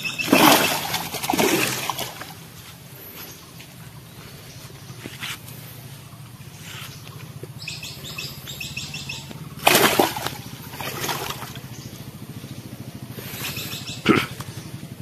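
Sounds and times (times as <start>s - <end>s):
bird chirping: 0.0s - 0.8s, 3.1s - 9.6s, 11.5s - 15.0s
fish splashing: 0.0s - 2.5s, 9.6s - 11.7s.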